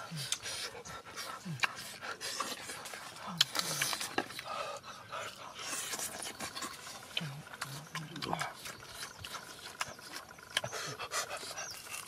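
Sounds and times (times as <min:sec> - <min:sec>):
person chewing noisily: 0:00.0 - 0:12.0.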